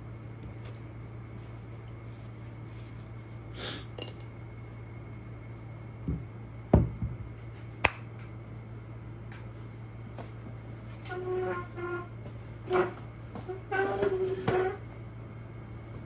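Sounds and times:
hands clapping: 7.8s - 8.1s.

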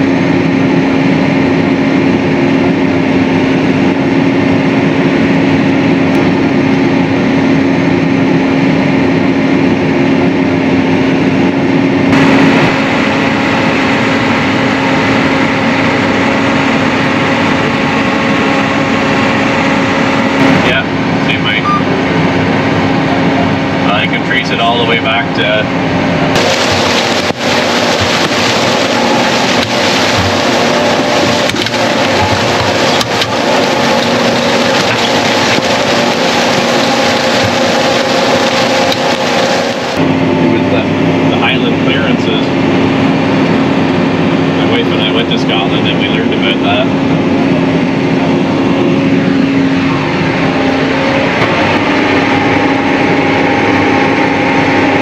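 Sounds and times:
engine hum: 0.0s - 55.0s
corn leaves rushing past: 26.4s - 40.0s.

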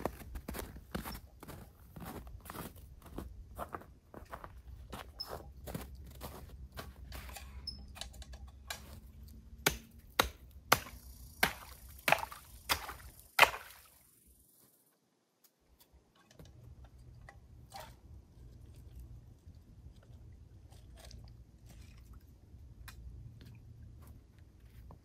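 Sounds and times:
footsteps crunching in snow: 0.0s - 7.3s
hatchet chopping ice: 9.6s - 13.8s.

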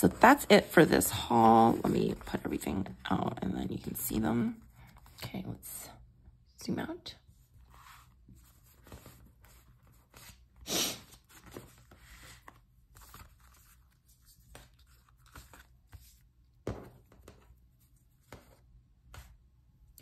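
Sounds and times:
sticker sheets rustling: 0.0s - 3.0s.

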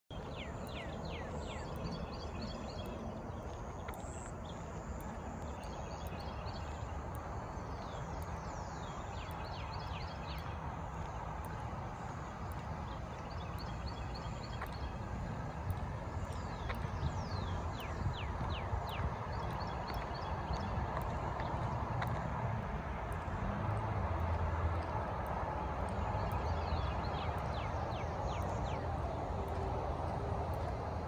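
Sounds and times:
birds calling: 0.1s - 23.4s
low rumble of road traffic: 0.1s - 31.0s.

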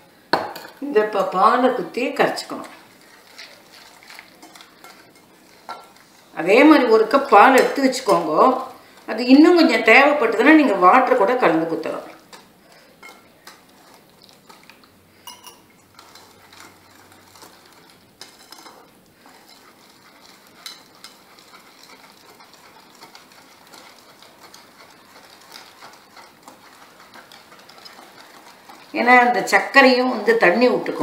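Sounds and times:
whisk tapping ceramic bowl: 2.6s - 31.0s.

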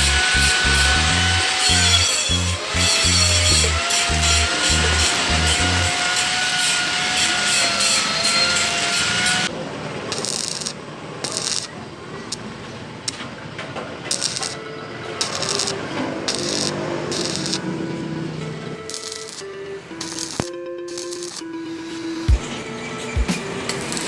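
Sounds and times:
welding arc crackling: 0.0s - 9.5s, 10.1s - 12.5s, 14.1s - 14.6s, 15.2s - 17.7s, 18.9s - 21.4s, 23.7s - 24.0s.

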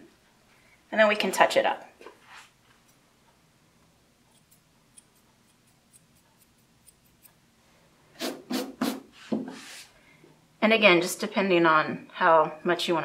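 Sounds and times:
grooming scissors snipping: 4.3s - 7.4s.

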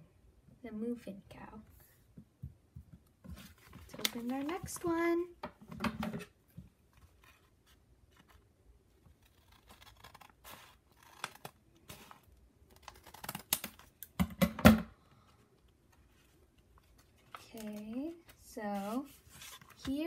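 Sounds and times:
scissors cutting paper: 9.2s - 12.2s.

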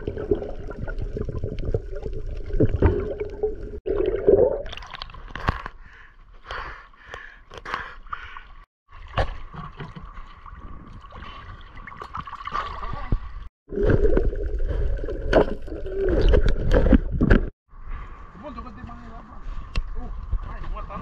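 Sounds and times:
water gurgling and sloshing: 0.0s - 6.4s, 8.0s - 17.5s.

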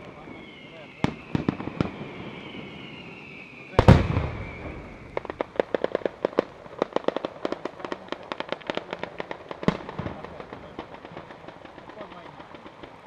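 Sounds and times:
firework whistle: 0.0s - 5.8s
firecracker bangs: 0.0s - 13.0s
firework blast rumble: 0.0s - 13.0s.

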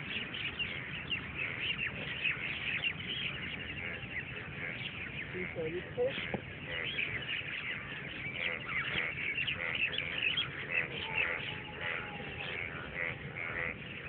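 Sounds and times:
birds chirping in chorus: 0.0s - 14.0s.

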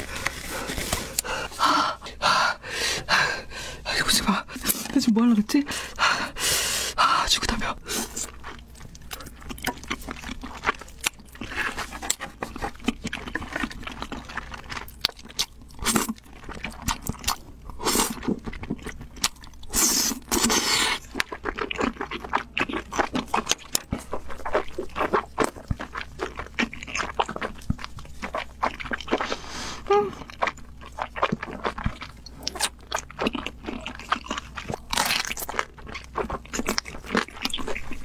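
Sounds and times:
chewing with smacks and clicks: 8.0s - 38.0s.

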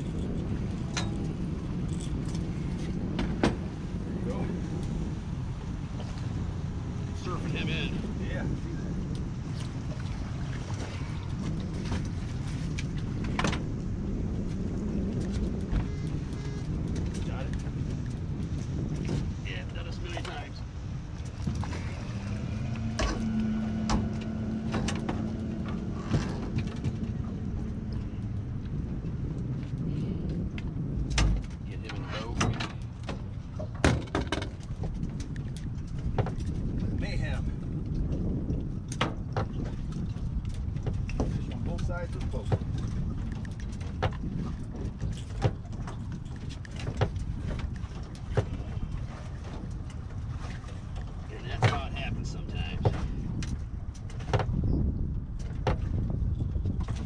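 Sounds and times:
low hum and rumble: 0.0s - 57.0s
fishing gear knocking and clattering: 31.1s - 36.5s, 40.4s - 50.0s.

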